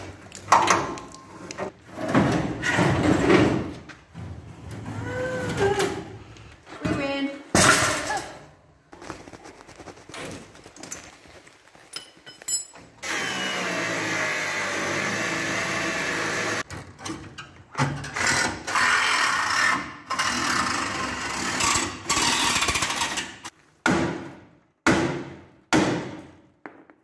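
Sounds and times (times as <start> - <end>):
power tool on rusted steel: 13.0 - 16.6.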